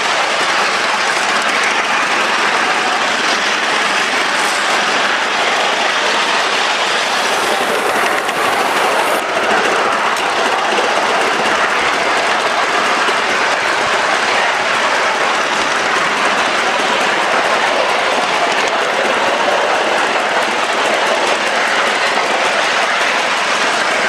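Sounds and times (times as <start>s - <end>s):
high steam hiss: 0.0s - 10.6s
steam locomotive exhaust and wheels: 0.0s - 24.0s.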